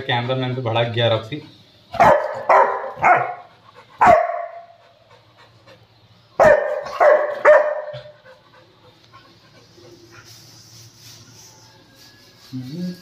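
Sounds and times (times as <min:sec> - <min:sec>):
dog barking aggressively: 0:01.9 - 0:04.8, 0:06.4 - 0:08.2.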